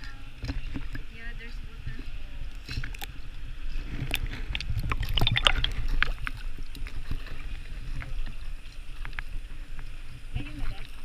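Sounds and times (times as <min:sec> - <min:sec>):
water splashing in a pool: 0:00.0 - 0:11.0.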